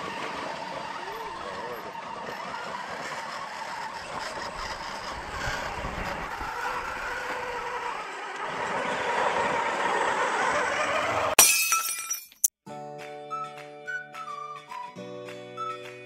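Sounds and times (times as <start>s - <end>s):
toy truck electric motor running: 0.0s - 11.4s.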